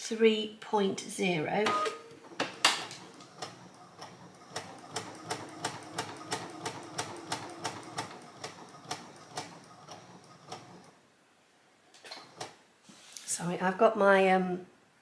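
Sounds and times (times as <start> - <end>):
faint motor hum: 1.6 - 11.0.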